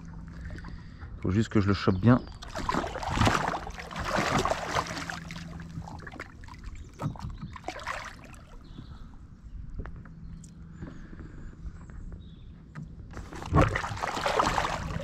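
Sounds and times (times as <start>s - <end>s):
fish thrashing and splashing: 2.4s - 8.8s, 13.2s - 15.0s.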